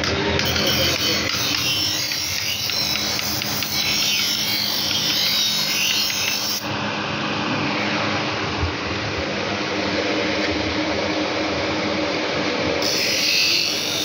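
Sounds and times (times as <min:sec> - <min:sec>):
blade grinding on wheel: 0:00.4 - 0:06.7, 0:12.8 - 0:14.0
bench grinder motor hum: 0:00.4 - 0:07.1, 0:12.8 - 0:14.0.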